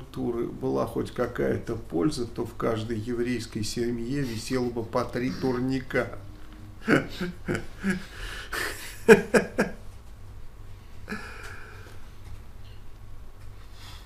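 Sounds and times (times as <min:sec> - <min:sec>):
man chuckling: 0:06.8 - 0:09.8, 0:11.1 - 0:11.7.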